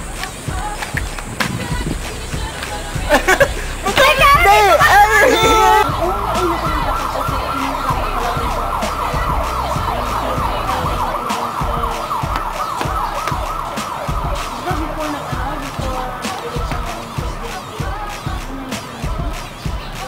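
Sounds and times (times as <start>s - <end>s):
electronic siren yelping: 4.0s - 18.2s.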